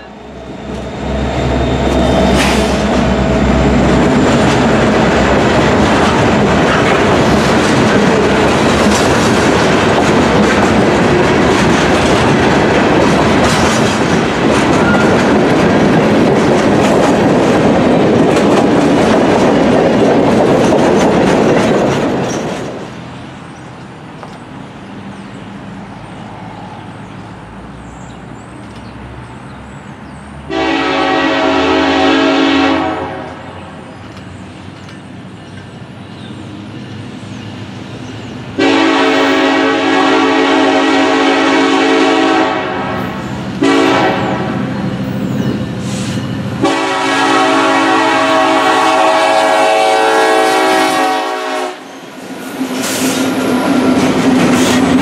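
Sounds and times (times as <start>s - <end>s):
train wheels clattering on rails: 0.6s - 24.6s, 33.2s - 40.1s, 50.6s - 55.0s
locomotive air horn blasts: 30.5s - 33.4s, 38.6s - 44.6s, 46.6s - 51.9s.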